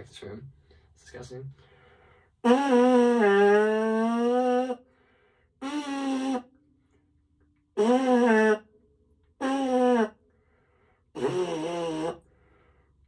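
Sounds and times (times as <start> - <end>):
trombone mouthpiece buzzing: 2.4 - 4.8, 5.6 - 6.6, 7.8 - 8.7, 9.4 - 10.2, 11.2 - 12.2.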